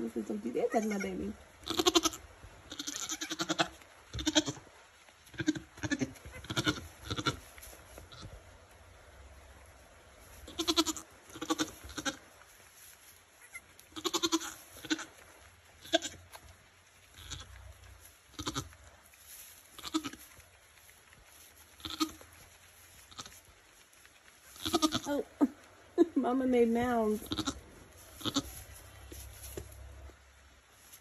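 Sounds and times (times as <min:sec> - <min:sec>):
goats bleating: 0:00.6 - 0:04.6, 0:05.3 - 0:07.4, 0:10.5 - 0:12.2, 0:13.4 - 0:15.2, 0:15.8 - 0:16.2, 0:17.1 - 0:17.6, 0:18.3 - 0:18.7, 0:19.8 - 0:20.2, 0:21.8 - 0:22.2, 0:23.1 - 0:23.4, 0:24.6 - 0:25.2, 0:27.2 - 0:28.6.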